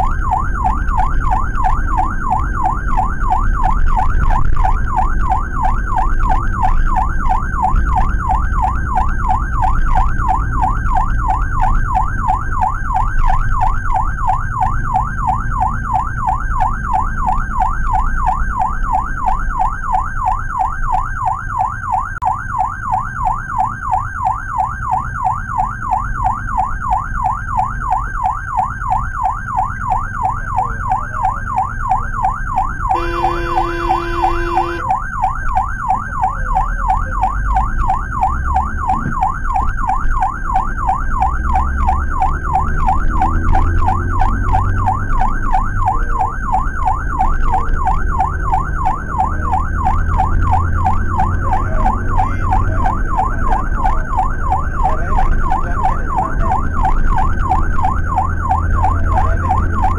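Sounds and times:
ambulance siren yelping: 0.0 - 59.9
low engine and road rumble: 0.0 - 59.9
vehicle horn blast: 32.9 - 34.9.

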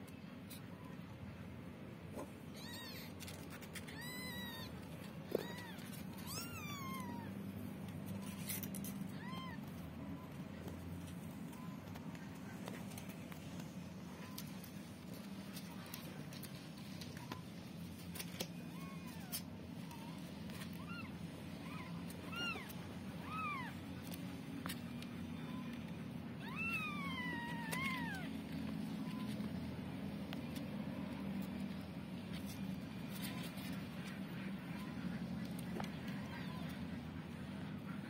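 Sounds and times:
kittens mewing: 2.1 - 16.5, 17.2 - 29.6.

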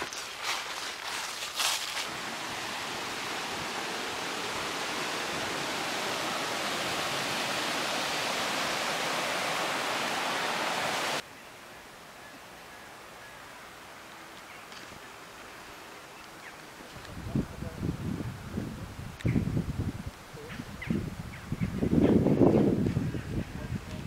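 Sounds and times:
faint outdoor hiss: 0.0 - 24.0
water rushing over a weir: 2.0 - 11.2.

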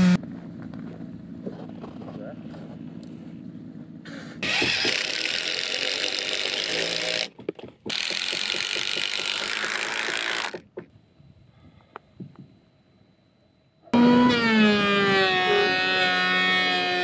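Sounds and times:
cordless driver driving screws: 4.4 - 7.3.

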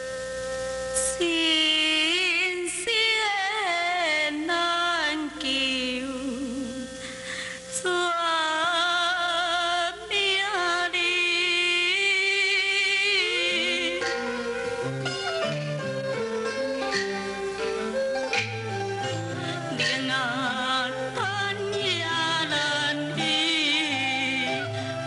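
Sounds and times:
person singing with vibrato: 1.0 - 15.6, 19.0 - 25.0
plucked string accompaniment: 10.4 - 25.0.

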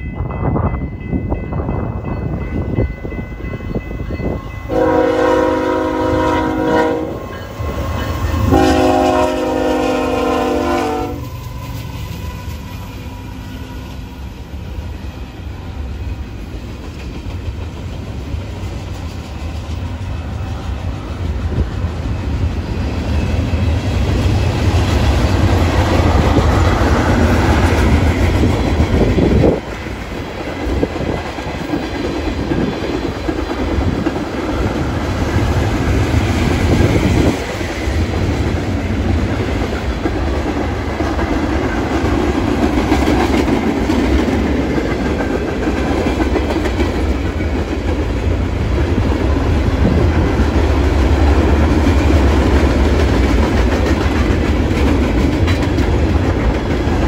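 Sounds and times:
freight train rumbling past: 0.0 - 57.0
wheels clacking on rails: 0.0 - 57.0
train air horn blasts: 4.7 - 11.3.

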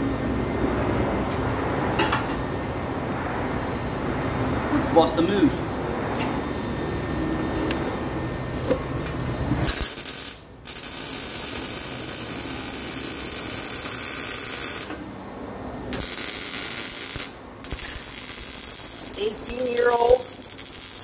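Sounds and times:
welding arc crackling: 9.6 - 15.2, 15.8 - 21.0.

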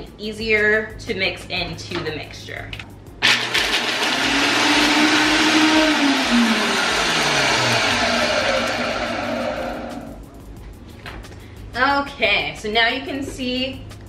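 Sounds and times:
blender grinding nuts: 3.2 - 10.2.

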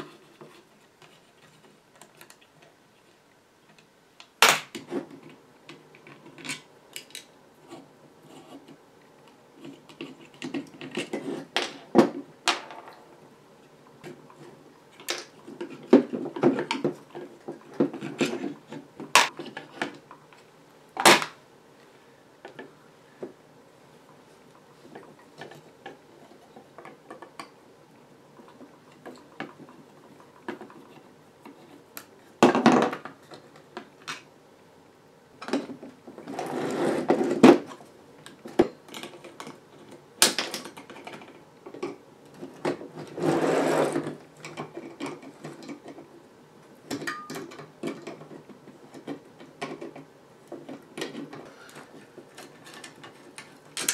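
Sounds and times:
scraping and rustling: 9.5 - 12.3, 35.5 - 40.0, 42.3 - 46.1
clatter of screws and parts: 46.9 - 53.9.

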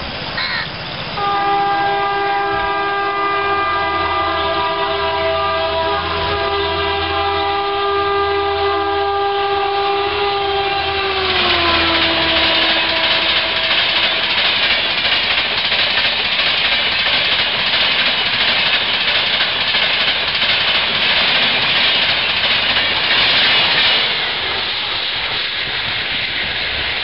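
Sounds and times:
train coaches rushing by: 0.0 - 27.0
train horn chord: 1.2 - 14.4.

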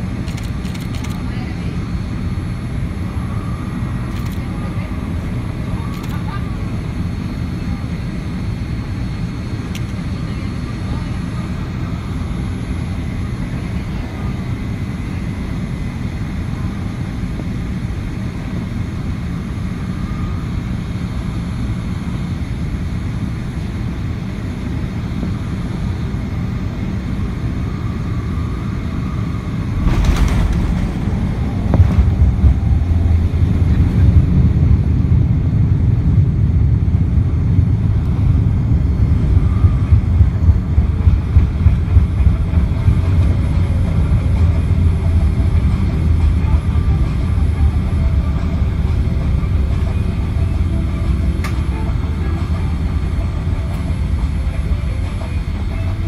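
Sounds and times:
airflow and engine rush: 0.0 - 56.0
rough rumble of landing roll: 29.8 - 33.0.

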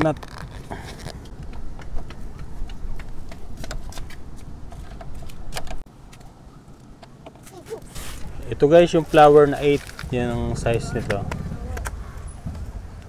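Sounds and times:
low rumble: 9.8 - 13.0.

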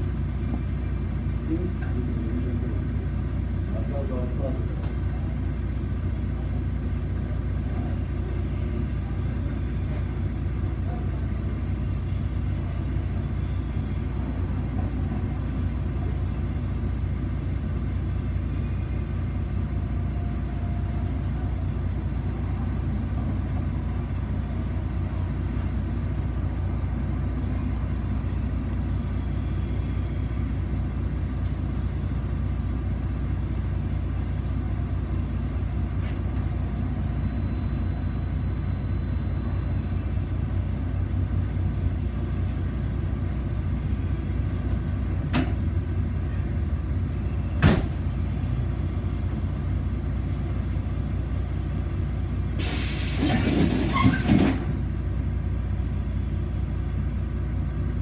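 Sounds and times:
bus engine and road noise: 0.0 - 58.0.

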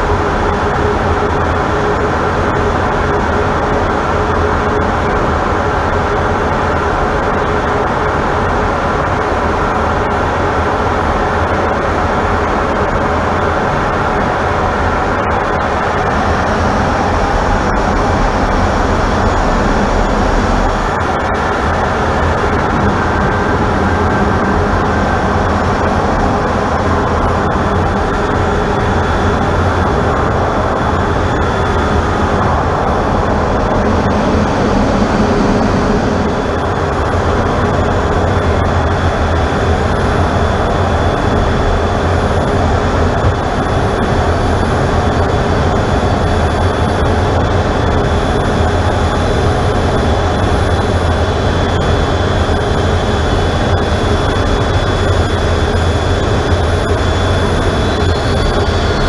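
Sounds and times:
muffled jet engine drone: 0.0 - 59.0
deep rumble: 13.8 - 59.0
air rushing over canopy: 15.0 - 39.2.

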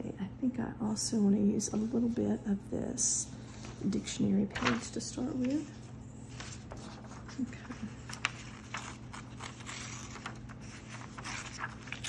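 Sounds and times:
brittle pages rustling: 3.6 - 12.0.

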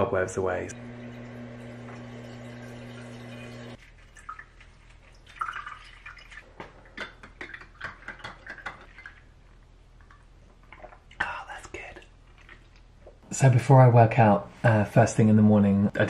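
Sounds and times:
water dispenser running: 0.7 - 3.8
water dripping: 0.7 - 13.2.

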